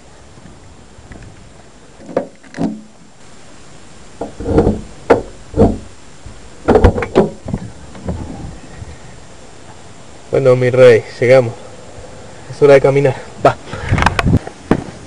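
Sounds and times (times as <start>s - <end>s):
sharp knocks and thumps: 4.2s - 5.9s, 6.6s - 8.2s.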